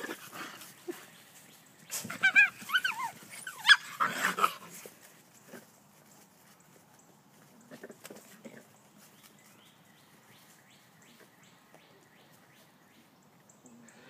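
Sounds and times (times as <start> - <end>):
puppies whining and yipping: 1.9 - 4.8.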